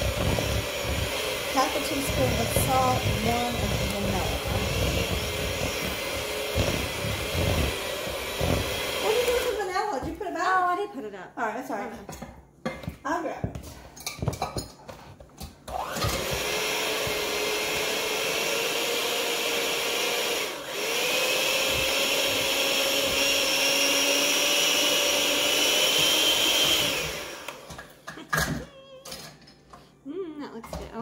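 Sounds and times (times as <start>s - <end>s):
kitchen mixer motor running: 0.0s - 9.8s, 15.7s - 28.6s.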